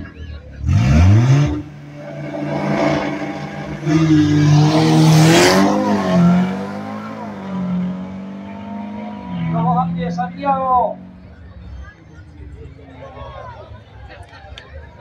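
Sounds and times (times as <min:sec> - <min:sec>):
car engines revving hard: 0:00.0 - 0:12.6.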